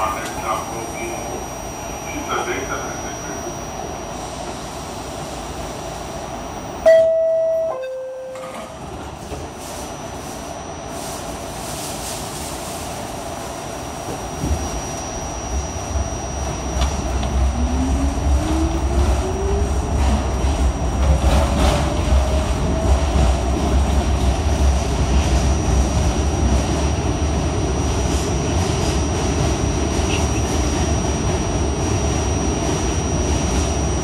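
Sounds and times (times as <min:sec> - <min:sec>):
train low rumble: 0:00.0 - 0:34.0
two-tone door chime: 0:06.8 - 0:08.8
traction motor rising whine: 0:14.6 - 0:20.0.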